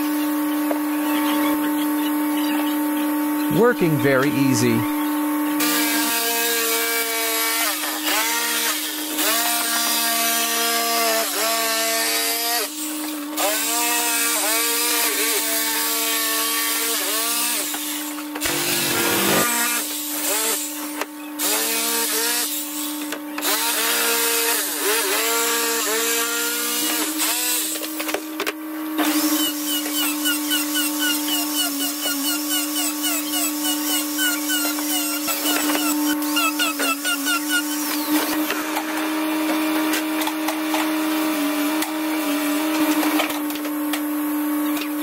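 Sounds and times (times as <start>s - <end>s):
jigsaw cutting wood: 5.6s - 20.7s, 23.4s - 28.2s, 29.0s - 43.3s.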